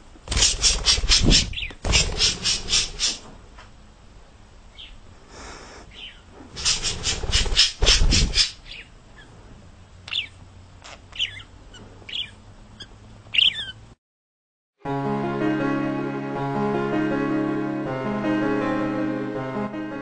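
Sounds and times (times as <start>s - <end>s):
budgerigar chirping: 0.3s - 3.2s, 4.7s - 5.0s, 5.9s - 9.3s, 10.1s - 13.8s
quick scratchy strokes: 0.3s - 3.3s, 6.4s - 8.6s.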